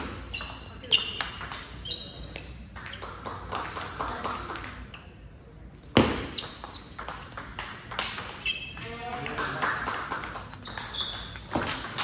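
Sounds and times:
table tennis ball hits: 0:00.0 - 0:01.8, 0:06.0 - 0:08.9, 0:09.5 - 0:12.0.

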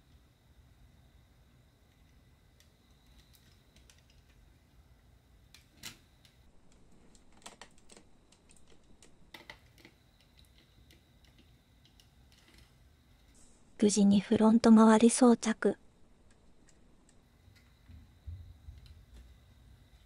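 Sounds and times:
plastic parts clicking: 0:02.0 - 0:04.4, 0:05.5 - 0:13.3.

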